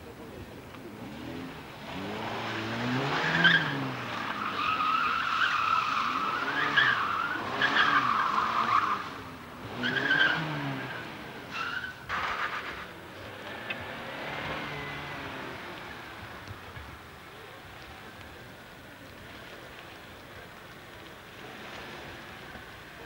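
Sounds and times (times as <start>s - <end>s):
car engine revving: 0.9s - 17.0s, 20.8s - 23.0s
tyres squealing on asphalt: 1.0s - 23.0s.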